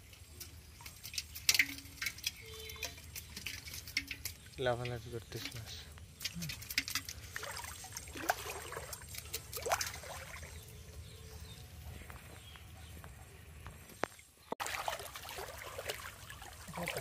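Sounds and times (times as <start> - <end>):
water splashing around wading person: 0.0 - 4.6, 6.2 - 10.8, 14.6 - 17.0
running water splashing: 0.0 - 10.8, 14.6 - 17.0.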